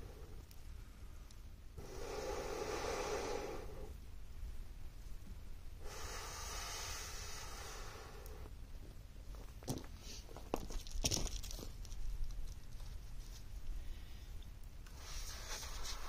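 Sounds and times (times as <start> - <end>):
person blowing through a tube: 1.8 - 3.9.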